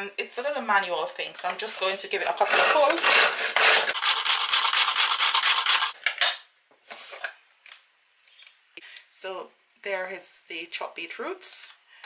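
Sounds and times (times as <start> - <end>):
hand chopper blades rasping: 3.9 - 6.0.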